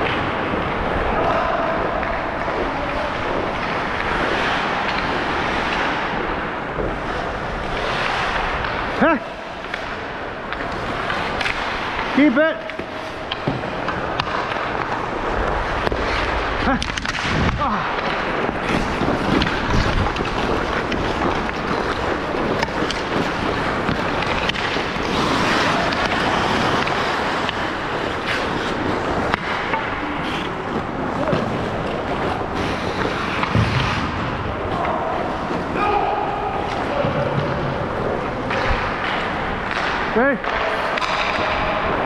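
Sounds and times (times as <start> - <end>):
skate blades scraping on ice: 0.0 - 40.1
sticks and puck clacking: 0.0 - 42.0.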